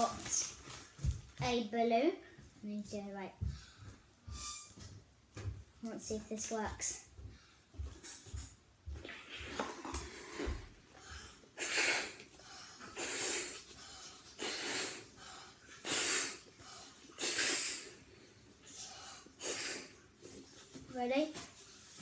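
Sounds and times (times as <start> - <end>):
quiet breaths: 3.3 - 4.3, 6.8 - 8.3, 9.1 - 20.8
child puffing into balloon: 9.0 - 12.3, 12.9 - 13.7, 14.4 - 15.1, 15.8 - 16.4, 17.1 - 18.0, 19.4 - 20.0.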